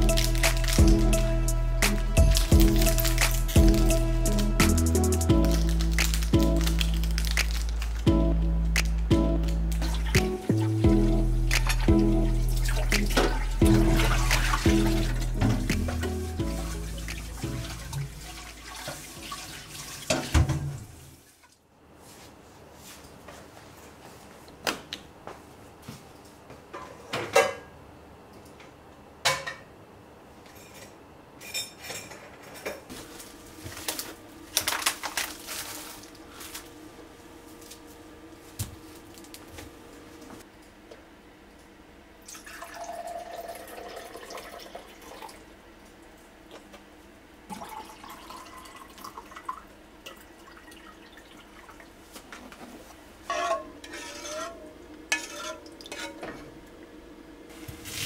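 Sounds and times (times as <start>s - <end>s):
liquid pouring into a cup: 42.3s - 45.4s, 47.5s - 51.8s
spoon scraping in a saucepan: 53.3s - 56.4s
pots and pans clattering: 53.3s - 56.5s.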